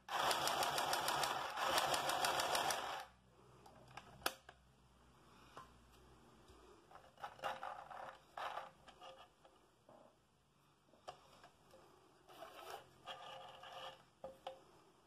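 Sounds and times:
sewing machine stitching: 0:00.0 - 0:03.1.

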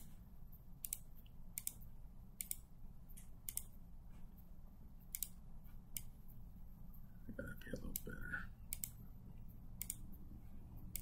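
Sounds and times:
faint low room hum: 0:00.0 - 0:11.0
computer mouse clicking: 0:00.8 - 0:04.2, 0:05.0 - 0:06.2, 0:07.8 - 0:10.2, 0:10.8 - 0:11.0.

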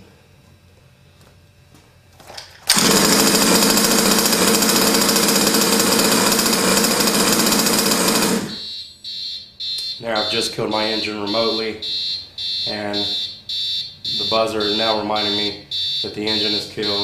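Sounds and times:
small two-stroke engine running: 0:02.6 - 0:08.6
high-pitched buzzer: 0:08.4 - 0:17.0.

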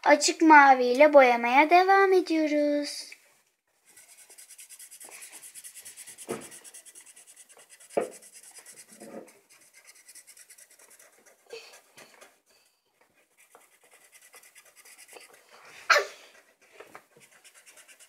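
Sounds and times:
marker scribbling on paper: 0:03.8 - 0:12.0, 0:13.3 - 0:15.5, 0:17.1 - 0:18.0.

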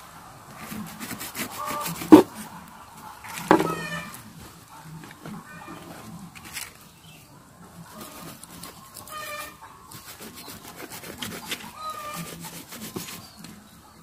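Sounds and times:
animal calling: 0:01.3 - 0:04.2.

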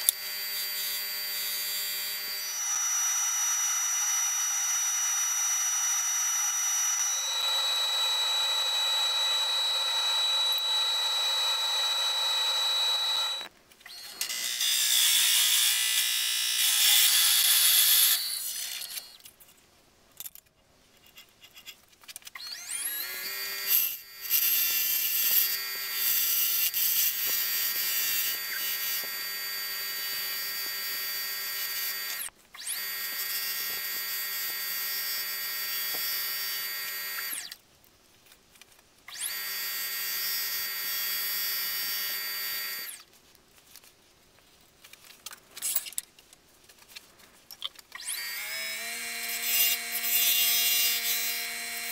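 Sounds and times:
wood lathe whining: 0:00.0 - 0:19.2, 0:22.4 - 0:37.6.

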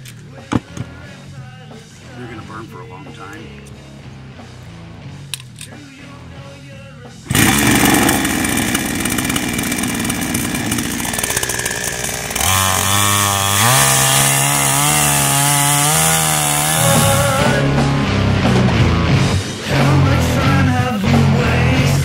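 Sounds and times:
chainsaw cutting wood: 0:07.3 - 0:20.0.

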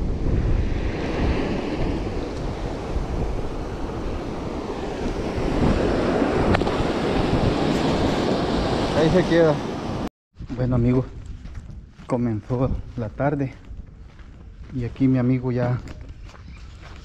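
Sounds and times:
surf washing on beach: 0:00.0 - 0:10.1
wind buffeting microphone: 0:00.0 - 0:17.0.

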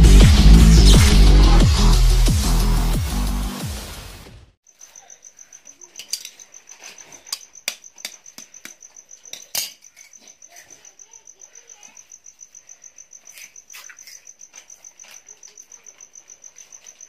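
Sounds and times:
electronic music with heavy bass: 0:00.0 - 0:04.5
cricket chirping: 0:04.6 - 0:17.0.

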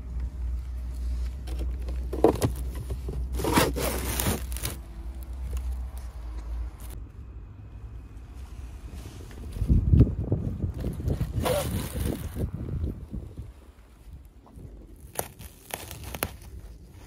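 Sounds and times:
plastic scraping: 0:01.4 - 0:04.8.

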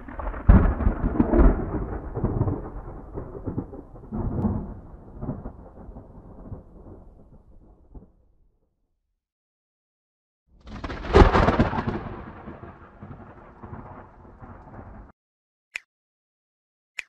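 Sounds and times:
thunder crack and rumble: 0:00.0 - 0:08.4, 0:10.6 - 0:15.1.

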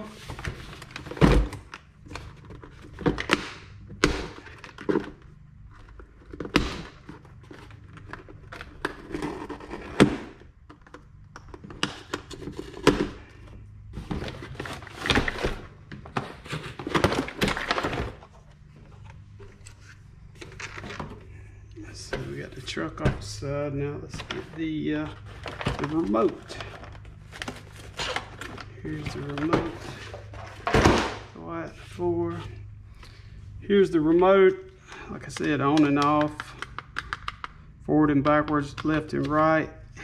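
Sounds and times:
cardboard and plastic rustling: 0:00.0 - 0:03.6, 0:04.2 - 0:32.5.

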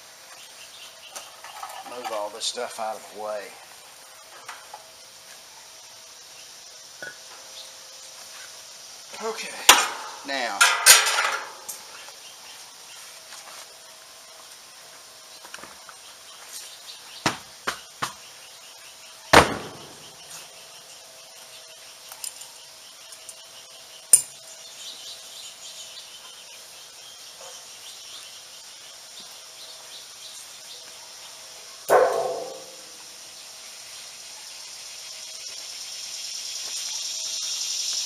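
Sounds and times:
light knocks of hard objects: 0:17.2 - 0:18.2.

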